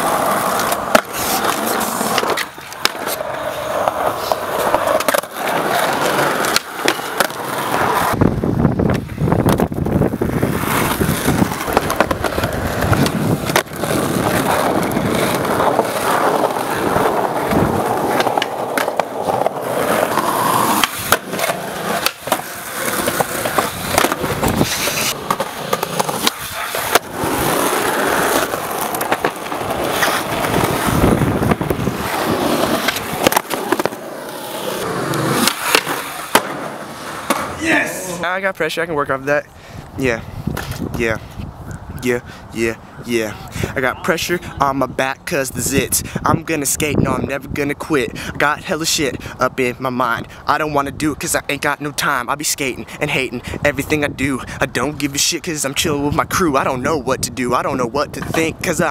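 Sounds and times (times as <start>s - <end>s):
skateboard tail clacks: 0.0s - 37.6s
skateboard wheels rolling on concrete: 0.0s - 58.9s.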